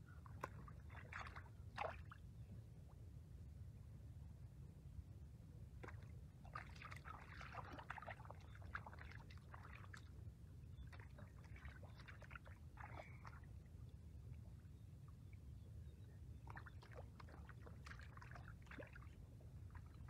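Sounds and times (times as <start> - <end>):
hands splashing in shallow water: 0.3 - 2.2, 5.8 - 10.1.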